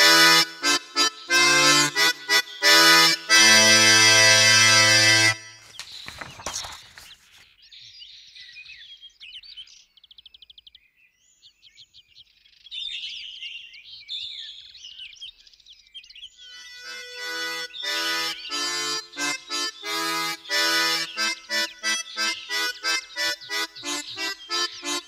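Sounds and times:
reed instrument tune: 0.0s - 5.6s, 16.5s - 25.0s
birds chirping and trilling: 0.8s - 25.0s.

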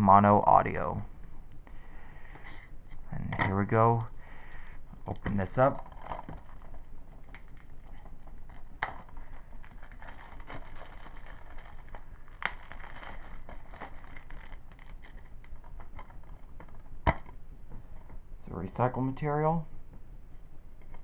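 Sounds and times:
plastic wrap crinkling: 5.0s - 17.0s.

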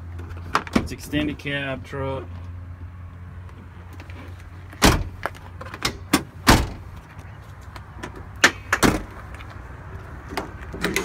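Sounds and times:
truck doors knocking and shutting: 4.8s - 6.9s, 8.0s - 9.2s.

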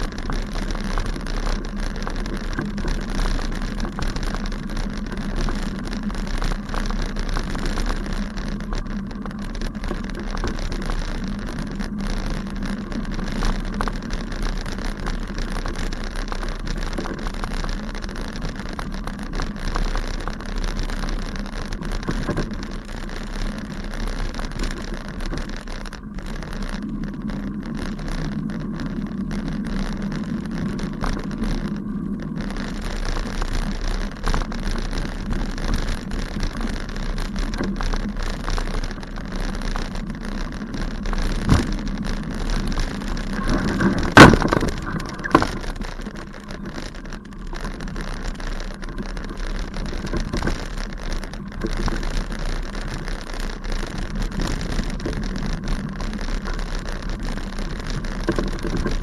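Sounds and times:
bicycle knocks: 0.0s - 52.6s, 53.2s - 59.0s
bicycle rattling over grass: 0.0s - 59.0s.

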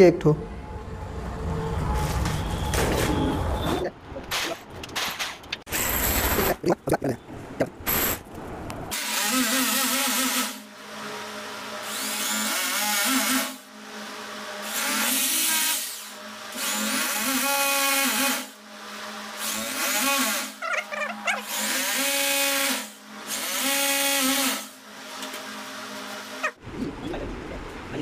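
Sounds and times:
electric drill boring into wall: 8.9s - 20.6s, 21.3s - 26.5s.

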